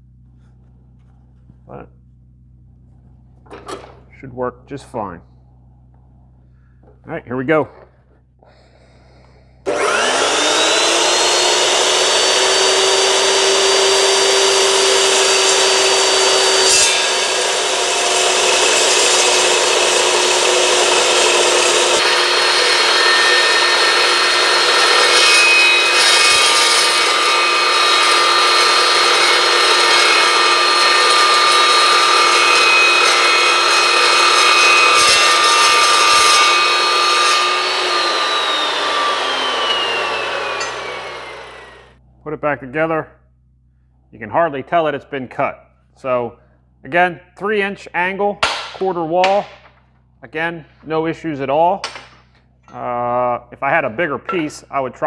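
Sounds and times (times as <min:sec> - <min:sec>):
chop saw motor whine: 0:09.6 - 0:42.0
saw blade cutting metal: 0:09.6 - 0:42.0.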